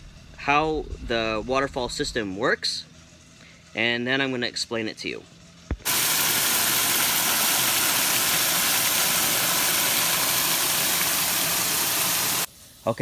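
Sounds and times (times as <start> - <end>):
water jets splashing into reservoir: 5.8 - 12.5.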